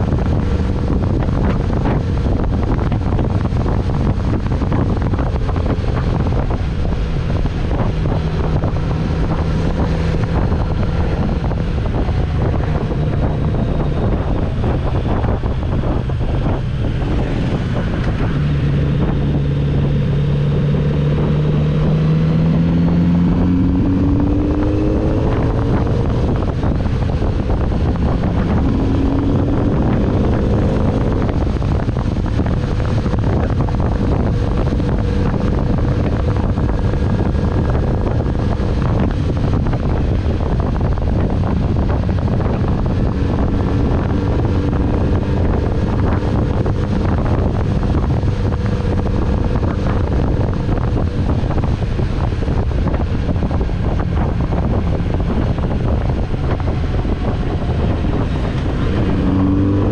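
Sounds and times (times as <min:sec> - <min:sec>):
motorcycle engine accelerating: 0:00.0 - 0:59.9
wind rushing over microphone: 0:00.0 - 0:59.9.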